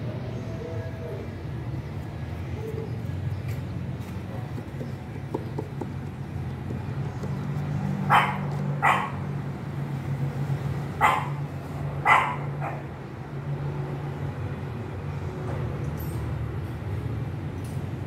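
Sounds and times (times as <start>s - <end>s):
dog barking: 8.1s - 9.2s, 11.0s - 11.4s, 12.0s - 12.9s.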